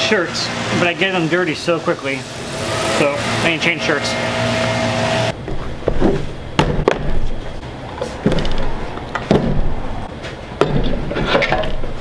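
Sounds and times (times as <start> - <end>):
boxes knocking and clunking: 5.4 - 12.0.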